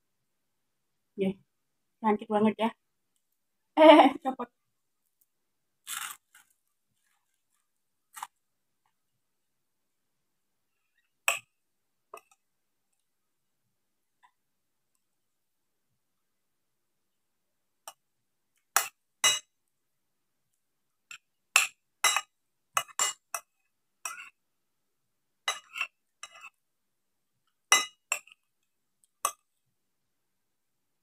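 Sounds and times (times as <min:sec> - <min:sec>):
crunchy chips being chewed: 0:05.8 - 0:08.4.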